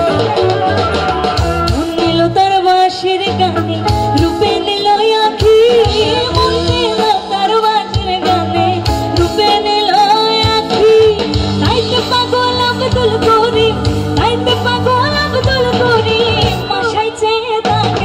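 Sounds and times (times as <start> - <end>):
electric bass: 0.0 - 4.7, 5.4 - 7.1, 10.4 - 17.0
keyboard: 0.0 - 18.0
woman singing with vibrato: 0.0 - 18.0.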